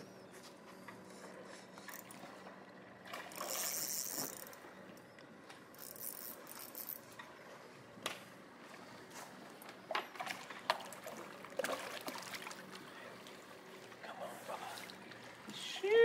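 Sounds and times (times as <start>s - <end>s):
fishing reel clicking while winding: 3.4s - 4.6s, 5.8s - 7.0s.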